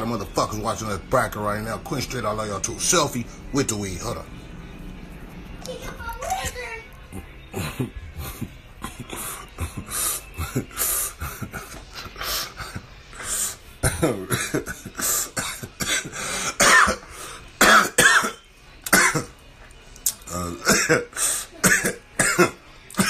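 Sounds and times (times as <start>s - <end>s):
man coughing: 13.8s - 19.3s, 20.3s - 23.0s.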